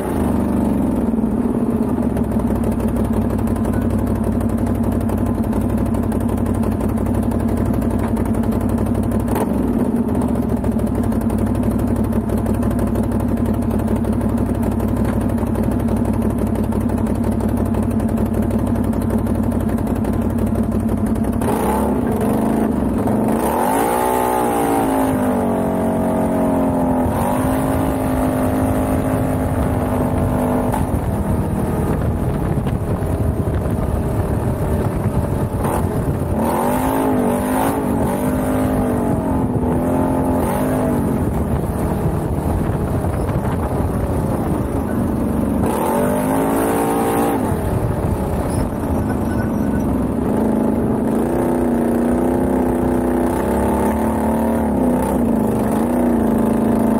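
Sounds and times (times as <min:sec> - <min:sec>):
quad engine revving: 0:20.6 - 0:56.9.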